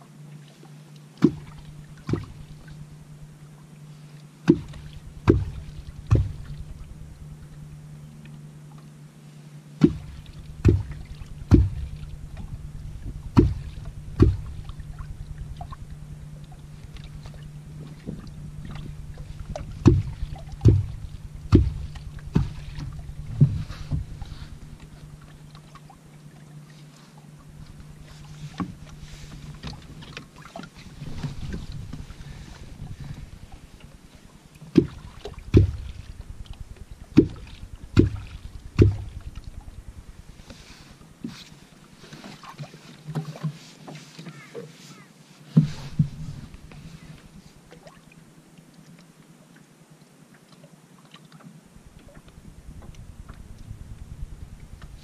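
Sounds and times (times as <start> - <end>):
wooden clonk striking water: 1.1 - 3.4, 4.4 - 8.4, 9.8 - 26.4, 27.4 - 41.3, 45.6 - 48.0.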